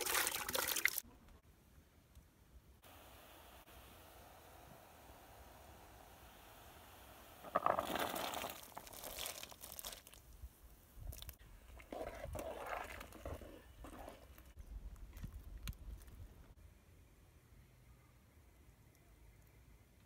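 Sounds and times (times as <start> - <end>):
pumpkin splashing into water: 0.0 - 1.0.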